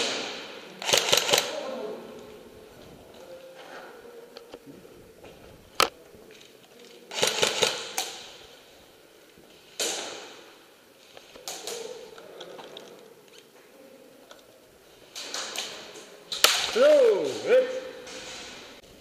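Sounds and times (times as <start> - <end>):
airsoft guns firing in echoing hall: 0.0 - 2.4, 5.8 - 13.0, 15.1 - 19.0.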